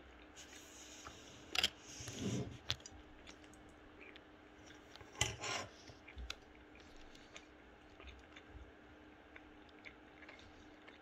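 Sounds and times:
thin steady hum: 0:00.0 - 0:11.0
closed-mouth chewing: 0:05.8 - 0:11.0.

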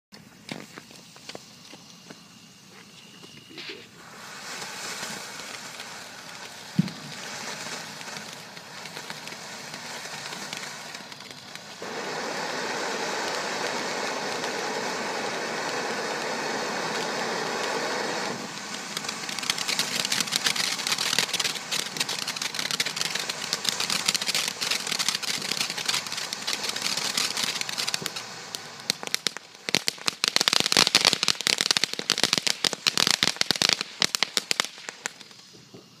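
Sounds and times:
firework crackling: 0:00.2 - 0:36.0
fountain firework hissing: 0:00.2 - 0:36.0
firework pop: 0:02.8 - 0:12.5, 0:15.6 - 0:29.4.

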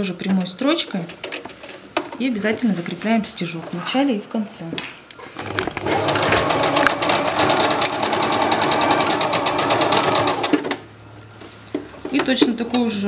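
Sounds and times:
sewing machine stitching: 0:05.4 - 0:10.8.

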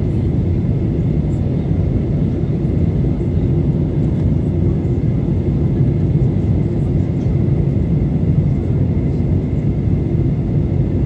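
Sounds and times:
airplane cabin rumble: 0:00.0 - 0:11.0.

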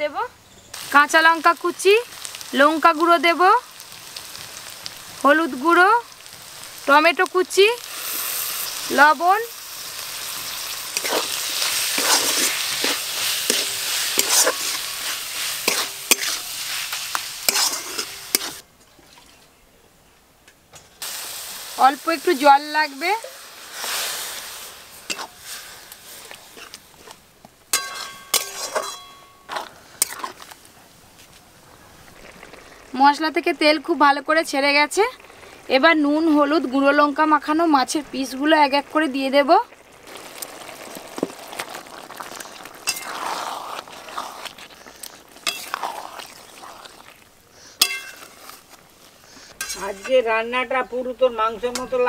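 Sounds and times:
sizzling in hot pan: 0:00.1 - 0:18.6, 0:21.0 - 0:52.0
metal spatula scraping pan: 0:10.9 - 0:18.6, 0:25.1 - 0:25.5, 0:27.7 - 0:30.6, 0:42.8 - 0:44.6, 0:45.4 - 0:47.0, 0:49.5 - 0:50.2
spatula striking pan with clink: 0:27.7 - 0:29.4, 0:47.8 - 0:48.2.

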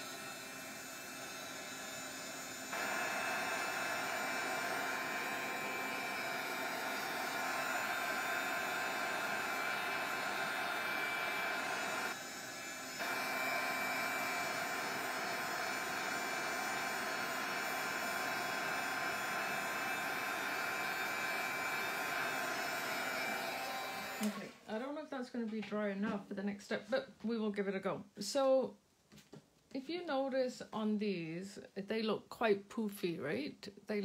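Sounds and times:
heat gun fan blowing: 0:00.0 - 0:24.6.

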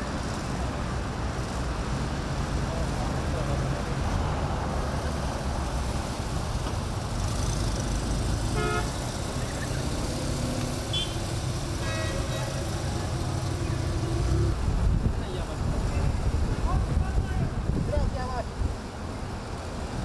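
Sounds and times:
car engines rumbling: 0:00.0 - 0:20.0
road noise: 0:00.0 - 0:20.0
car horn toots: 0:08.6 - 0:09.0, 0:10.9 - 0:11.2.

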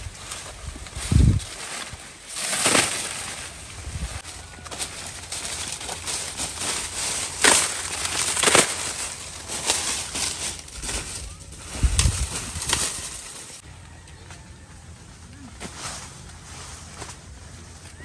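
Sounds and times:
dry corn stalks rustling: 0:00.0 - 0:14.4, 0:15.1 - 0:18.0
corn stalks snapping: 0:00.3 - 0:13.6.

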